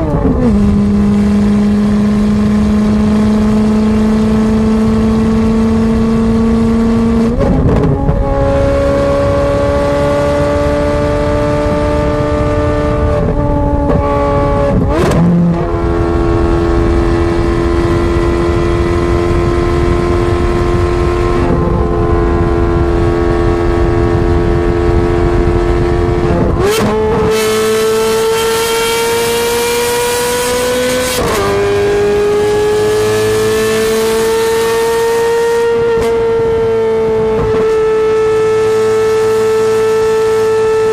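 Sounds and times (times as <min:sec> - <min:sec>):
car engine through straight-pipe exhaust: 0:00.0 - 0:40.9
exhaust crack at gear changes: 0:07.1 - 0:08.4.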